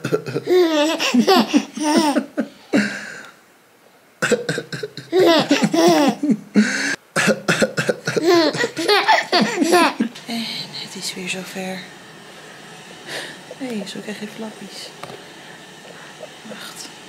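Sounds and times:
baby laughing and squealing: 0.4s - 2.2s, 5.1s - 6.4s, 8.2s - 10.1s.

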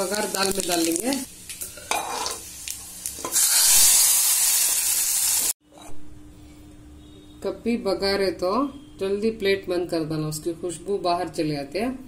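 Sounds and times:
light sizzling with clicks: 0.0s - 5.6s
hot oil hissing: 2.2s - 5.6s.

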